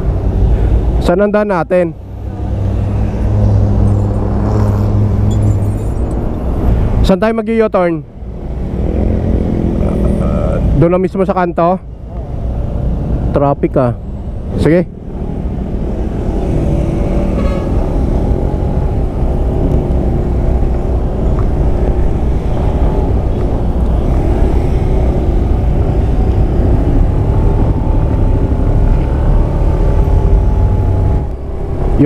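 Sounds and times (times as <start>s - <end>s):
wind rumble on microphone: 15.0s - 32.0s.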